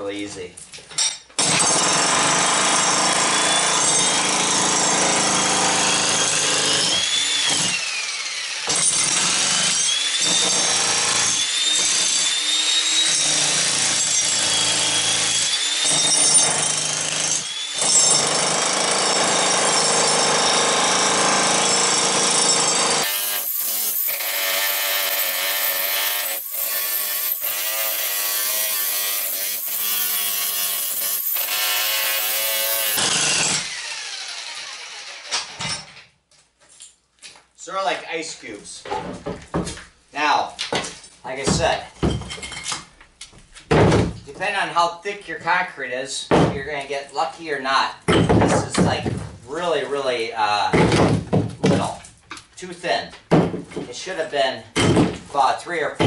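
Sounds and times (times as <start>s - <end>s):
jackhammer chiselling concrete: 1.4s - 35.6s.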